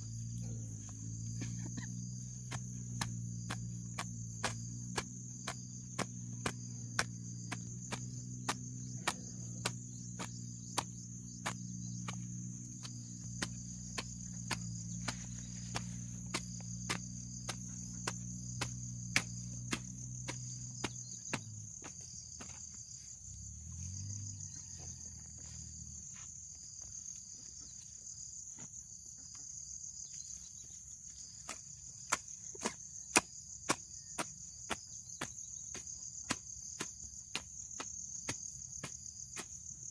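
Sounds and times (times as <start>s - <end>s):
low hum: 0.0s - 22.7s
crickets chirring: 0.0s - 39.9s
hoe chopping into soil: 1.1s - 22.9s, 31.4s - 39.9s.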